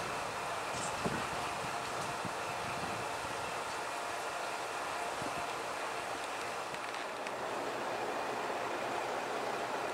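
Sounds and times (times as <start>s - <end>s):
wind noise on microphone: 0.0s - 3.8s, 5.1s - 5.6s
railcar engine idling: 0.0s - 9.9s.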